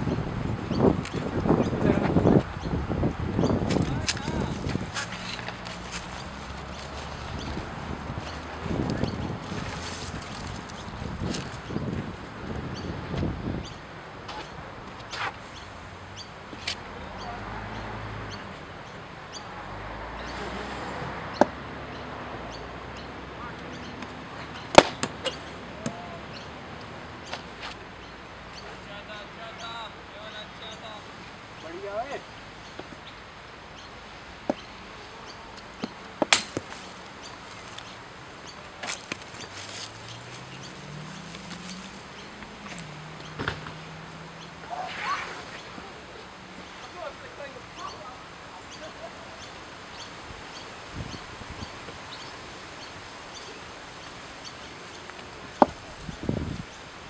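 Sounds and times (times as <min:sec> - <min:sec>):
cricket bat striking ball: 0:24.7 - 0:25.3.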